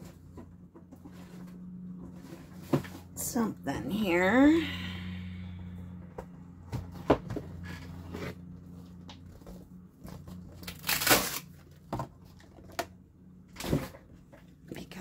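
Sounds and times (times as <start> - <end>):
rustling scrape: 0.0 - 3.3, 7.5 - 10.6
low steady hum: 0.0 - 15.0.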